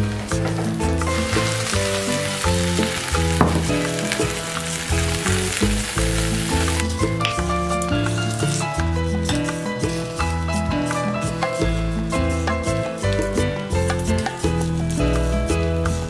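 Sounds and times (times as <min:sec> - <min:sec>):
food sizzling in a dish: 0:00.0 - 0:15.2
background music: 0:00.0 - 0:16.0.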